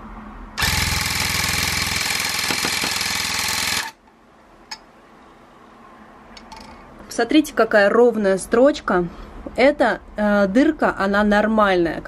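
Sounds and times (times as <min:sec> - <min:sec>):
tufting gun buzzing: 0:00.6 - 0:04.0.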